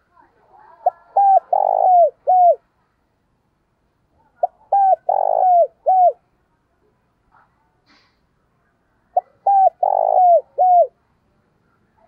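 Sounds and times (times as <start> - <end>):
dove cooing: 0.6 - 2.6, 4.3 - 6.2, 9.2 - 11.0.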